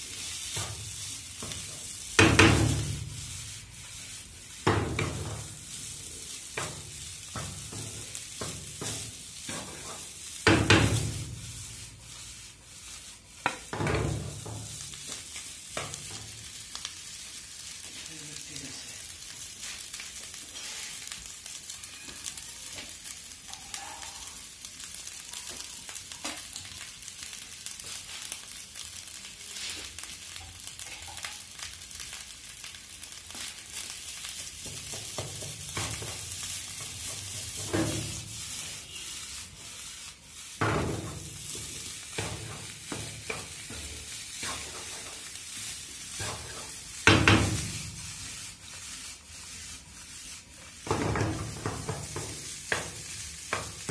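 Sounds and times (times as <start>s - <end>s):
rice sizzling in a frying pan: 0.0s - 53.9s
wooden spatula scraping a pan: 0.1s - 17.4s, 19.6s - 25.6s, 33.2s - 53.9s.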